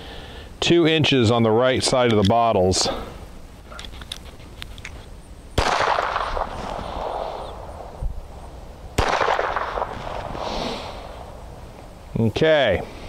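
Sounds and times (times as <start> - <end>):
pistol shots: 5.6 - 7.5, 9.0 - 10.3.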